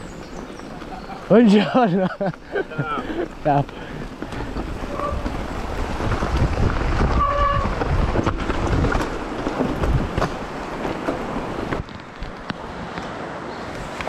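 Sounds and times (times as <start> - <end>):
bike tyres crunching on rock: 0.0 - 13.0
wind buffeting microphone: 0.0 - 13.1
bike frame rattling: 2.2 - 12.4.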